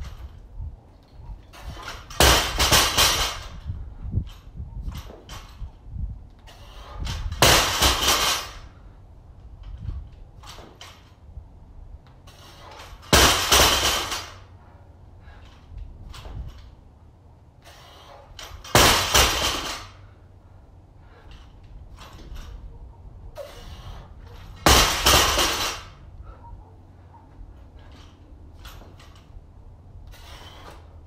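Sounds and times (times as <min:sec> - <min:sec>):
metallic rattle of plates: 0:01.1 - 0:03.8
barbell crashing on rubber mats: 0:01.7 - 0:03.6, 0:07.2 - 0:08.6, 0:12.9 - 0:14.5, 0:18.6 - 0:20.0, 0:24.6 - 0:26.0.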